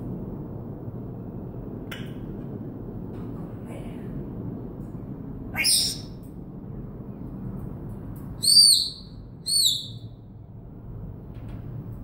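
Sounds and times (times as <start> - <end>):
parrot rising squeak: 5.6 - 6.1, 8.4 - 10.0
parrot whistling: 5.6 - 6.1, 8.4 - 10.1.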